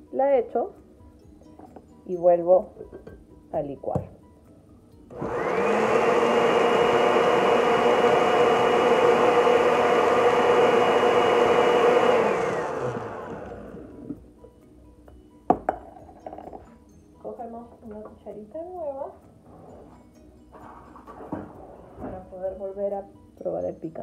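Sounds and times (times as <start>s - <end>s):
blender motor whining: 5.1s - 14.2s.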